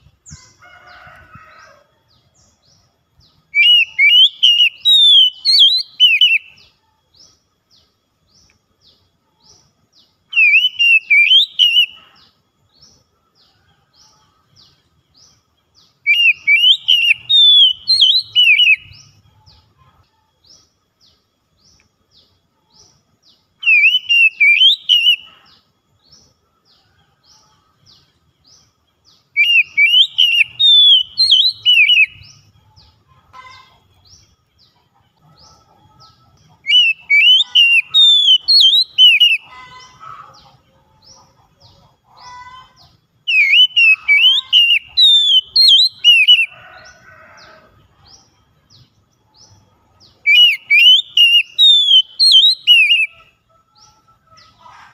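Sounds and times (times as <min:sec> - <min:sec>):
bird singing whistled notes: 0:03.2 - 0:13.0, 0:14.6 - 0:19.7, 0:21.6 - 0:26.3, 0:27.4 - 0:33.0, 0:35.5 - 0:39.8, 0:43.2 - 0:47.2, 0:48.2 - 0:54.0.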